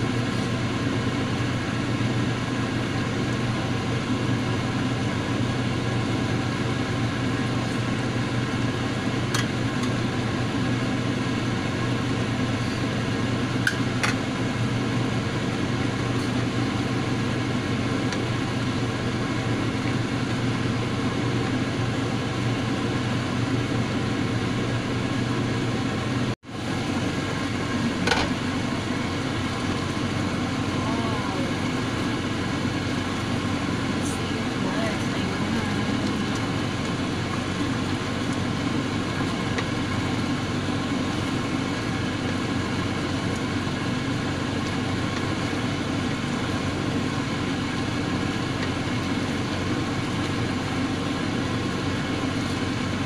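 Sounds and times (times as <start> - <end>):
steady mechanical hum: 0.0 - 53.0.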